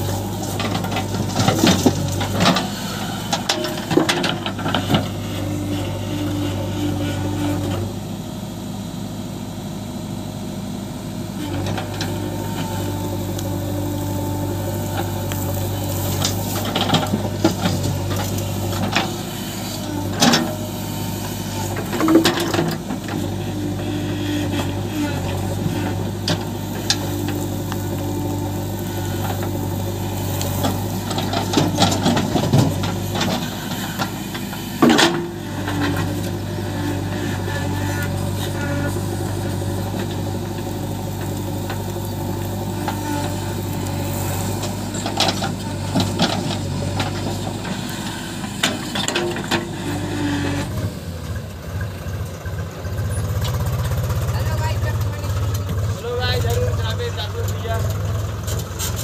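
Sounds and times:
hydraulics working: 0.0s - 8.5s, 11.0s - 59.0s
diesel engine running: 0.0s - 59.0s
steel bucket scraping stony soil: 54.2s - 59.0s.

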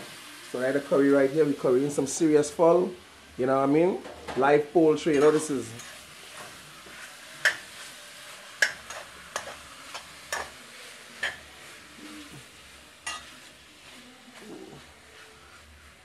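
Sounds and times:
chicken sizzling in oil: 0.0s - 16.0s.

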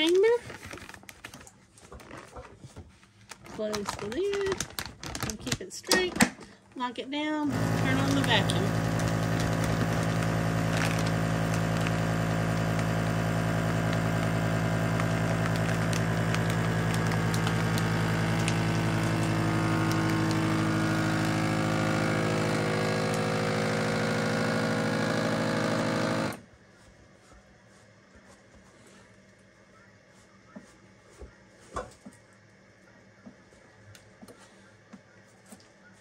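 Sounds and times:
vacuum sealer pump running: 7.5s - 26.5s.

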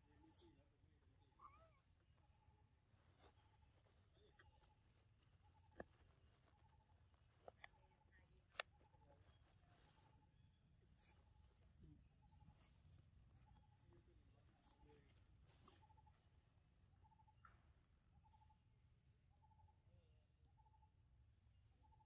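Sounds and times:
insect chirping: 0.0s - 22.0s
faint clicks: 4.2s - 10.3s.

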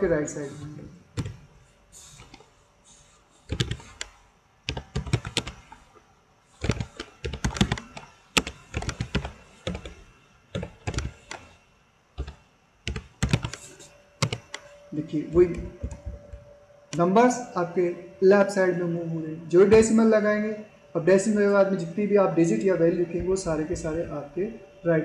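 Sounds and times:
keyboard keystrokes: 1.2s - 1.4s, 3.5s - 5.8s, 6.6s - 10.0s, 10.6s - 11.5s, 12.2s - 14.7s.

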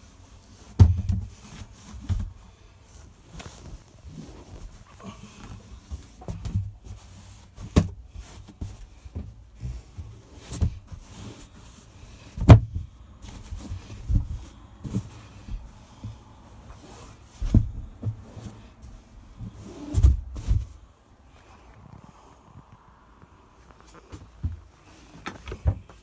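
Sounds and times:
knocks and thumps on woodwork: 12.4s - 12.9s.

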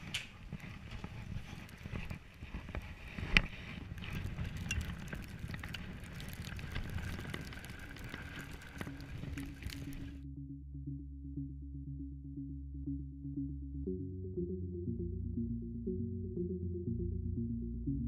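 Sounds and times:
bike rolling over snow: 0.0s - 10.2s
small clicks and rattles: 0.0s - 10.2s.

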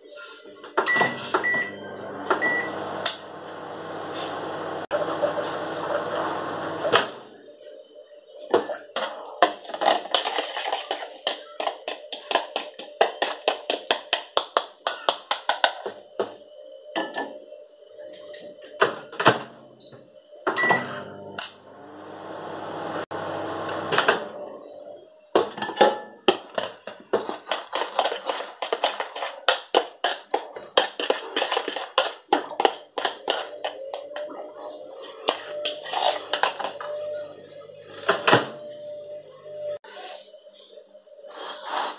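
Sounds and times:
microwave beep: 0.8s - 6.9s, 19.8s - 25.0s, 36.1s - 39.8s
microwave humming: 0.9s - 7.4s, 20.6s - 24.6s.

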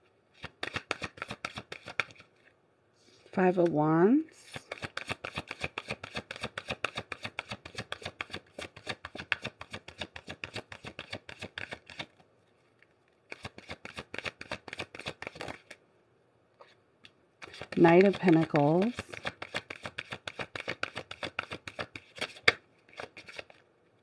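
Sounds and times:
cards being shuffled: 0.3s - 2.5s, 4.4s - 12.2s, 13.3s - 15.8s, 17.4s - 23.6s.

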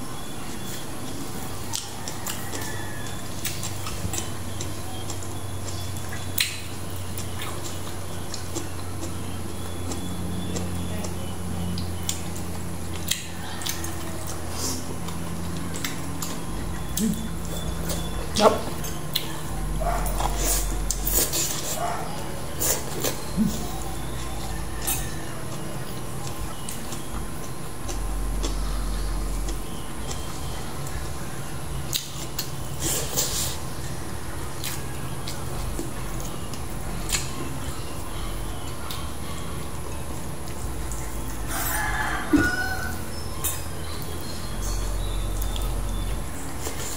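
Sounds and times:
wet chewing noises: 0.5s - 46.9s
low hum: 2.6s - 32.8s.

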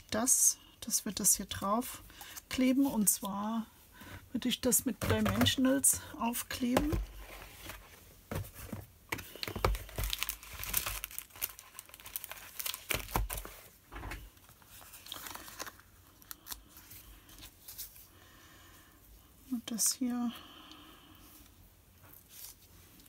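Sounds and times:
paper crinkling and rustling: 6.7s - 18.1s.

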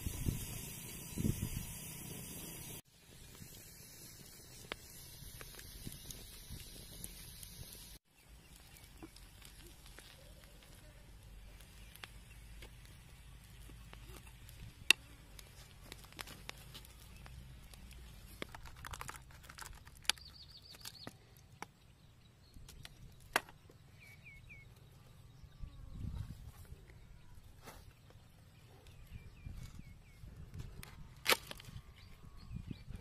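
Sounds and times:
campfire crackles and pops: 0.0s - 21.8s.

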